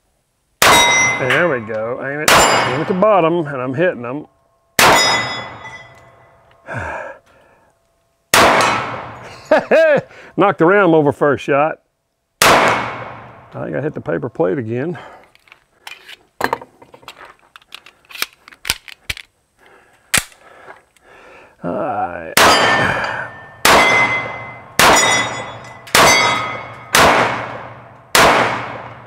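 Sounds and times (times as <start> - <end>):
pistol shots: 0.6 - 1.4, 2.2 - 3.0, 4.8 - 5.7, 8.3 - 9.2, 12.4 - 13.5, 22.4 - 23.0, 23.6 - 29.0.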